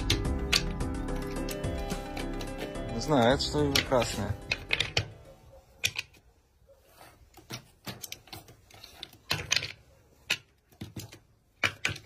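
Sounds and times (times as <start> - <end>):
game pieces tapping wooden board: 0.0 - 2.7, 3.6 - 5.2, 7.5 - 12.0.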